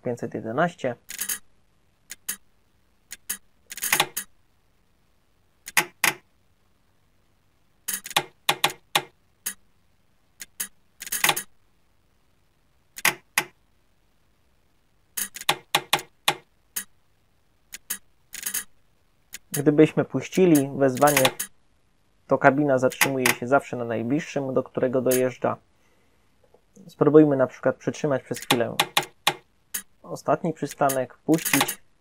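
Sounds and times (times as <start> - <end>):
relays clicking: 20.4 - 21.5, 22.9 - 23.4, 28.3 - 29.9, 30.7 - 31.8.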